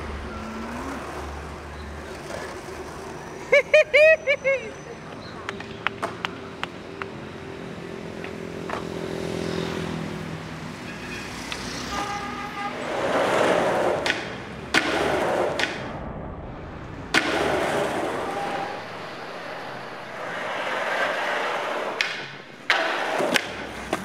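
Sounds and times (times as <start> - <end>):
skateboard wheels rolling on asphalt: 0.0 - 16.0, 16.6 - 24.0
passing city traffic: 0.0 - 24.0
sharp skateboard clacks: 5.1 - 7.2, 12.8 - 15.9, 17.1 - 24.0
car horn tooting: 11.8 - 13.0.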